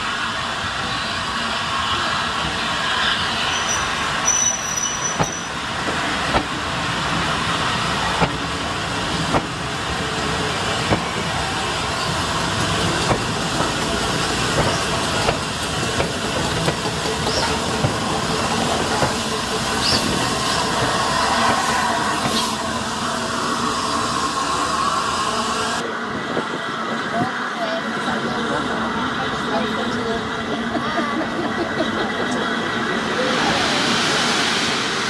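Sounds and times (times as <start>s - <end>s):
train wheels rumbling on rail: 0.0s - 35.0s
wheels clicking over rail joints: 10.8s - 20.3s.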